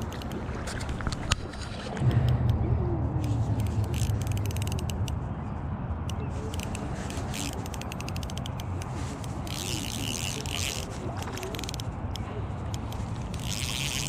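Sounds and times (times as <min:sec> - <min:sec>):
fishing reel ticking: 0:00.0 - 0:00.6, 0:03.6 - 0:05.1, 0:06.5 - 0:14.0
low rumble: 0:01.6 - 0:06.0.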